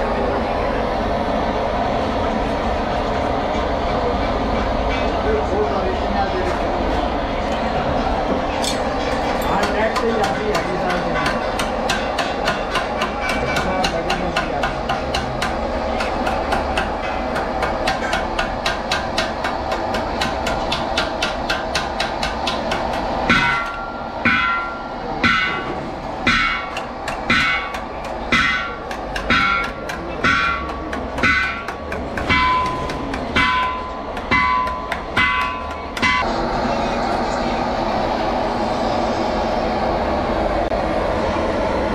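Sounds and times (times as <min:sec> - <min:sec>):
hammer striking metal tank: 0:09.4 - 0:36.3.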